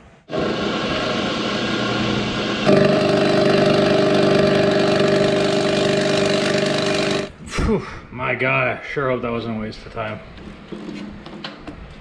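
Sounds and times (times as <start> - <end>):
milling machine cutting metal: 0.3 - 7.3.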